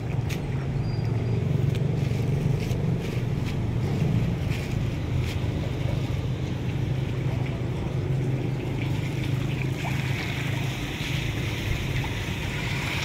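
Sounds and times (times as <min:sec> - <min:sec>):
steady low rumble: 0:00.0 - 0:13.0
plastic bag crackling: 0:01.8 - 0:06.2.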